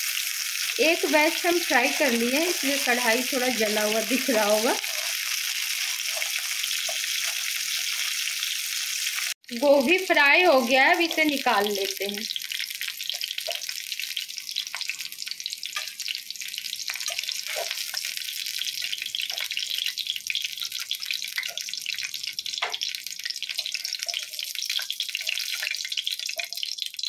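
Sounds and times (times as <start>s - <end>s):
hot oil sizzling: 0.0s - 27.0s
spoon scraping pan: 4.2s - 8.2s, 16.9s - 18.2s, 22.6s - 26.6s.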